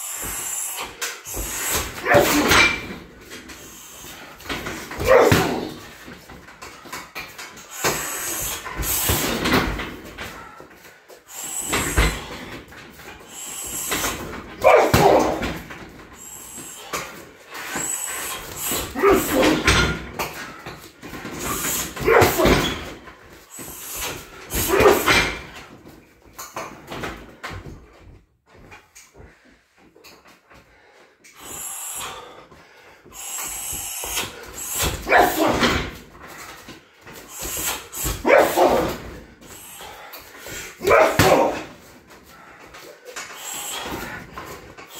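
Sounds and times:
kicks hitting punching bag: 4.7s - 5.9s, 14.6s - 15.6s.

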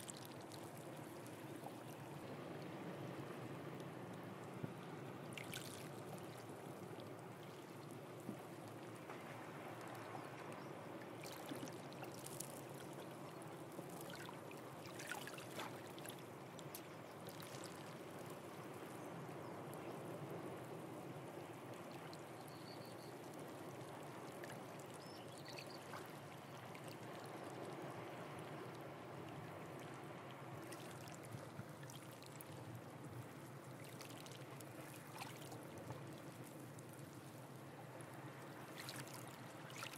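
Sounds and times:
water drips and small splashes: 0.0s - 2.6s, 3.8s - 39.9s
water lapping among rocks: 38.6s - 39.9s.

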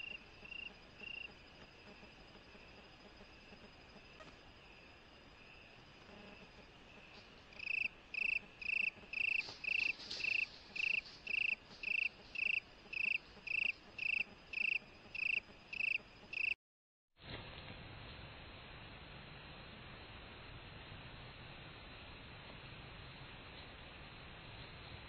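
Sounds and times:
insect chirping rhythmically: 0.0s - 16.6s.

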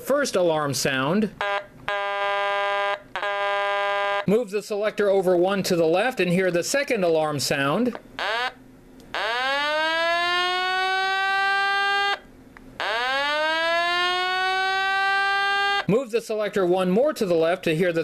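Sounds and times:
buzzy electronic siren: 1.4s - 4.3s, 8.2s - 12.2s, 12.8s - 15.9s.

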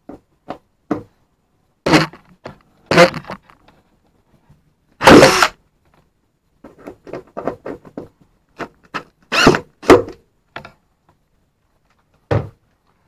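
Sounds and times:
cordless drill whirring: 5.0s - 5.6s, 9.3s - 9.6s.

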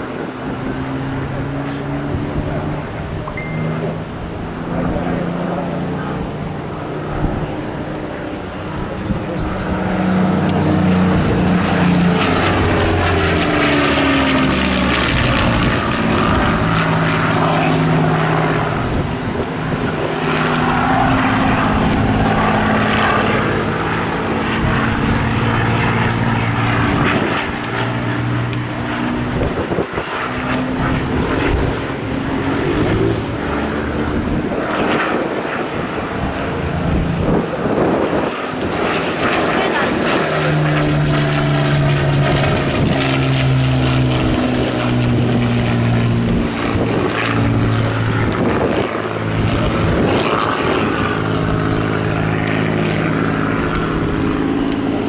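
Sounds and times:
propeller aircraft engine overhead: 0.0s - 55.0s.

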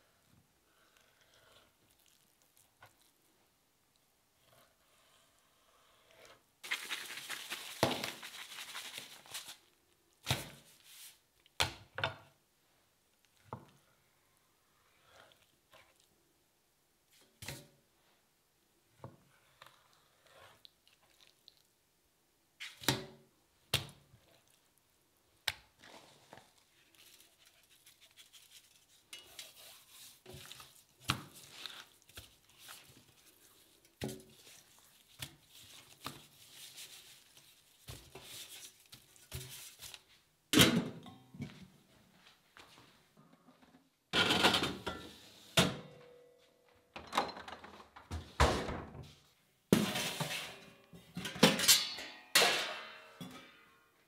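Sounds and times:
gritty rustling of coating: 6.6s - 9.8s, 25.7s - 40.3s.

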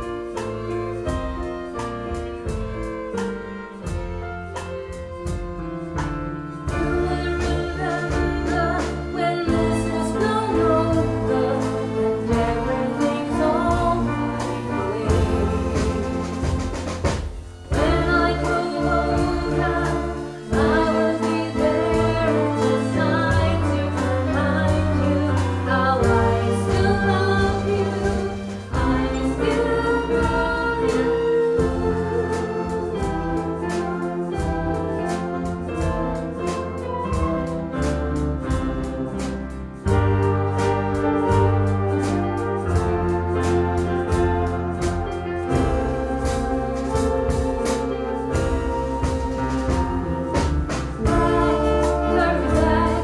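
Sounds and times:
orchestra playing: 0.0s - 53.0s
woman singing: 6.7s - 16.3s, 17.7s - 33.2s, 51.0s - 53.0s.

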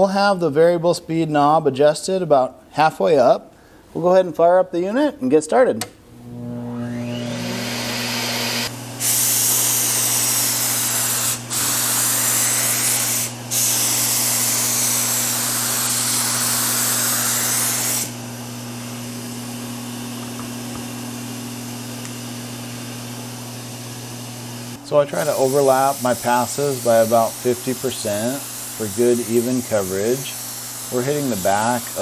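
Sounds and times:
turbine humming: 6.2s - 32.0s
spray gun hissing air: 8.6s - 18.2s, 25.1s - 32.0s.

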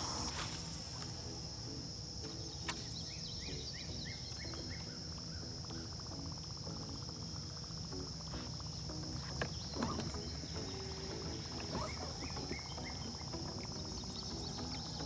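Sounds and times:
high-pitched insect drone: 0.0s - 15.0s
bird singing falling notes: 2.2s - 6.3s, 8.2s - 15.0s.

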